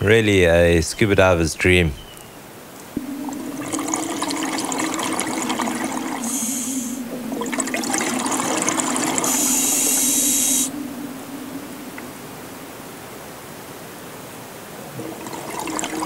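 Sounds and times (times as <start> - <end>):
low steady hum: 2.6 - 16.0
bubbles gurgling underwater: 2.9 - 12.6, 14.8 - 16.0
regulator hiss: 2.9 - 12.8.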